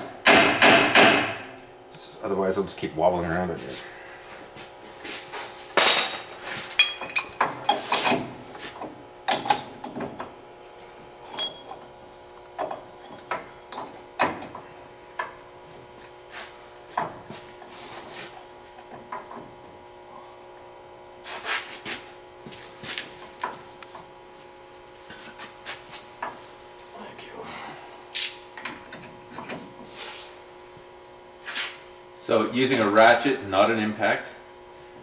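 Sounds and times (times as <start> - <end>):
faint steady hum: 0.0 - 35.0
metal tools clinking and knocking: 5.8 - 8.1, 11.2 - 11.8.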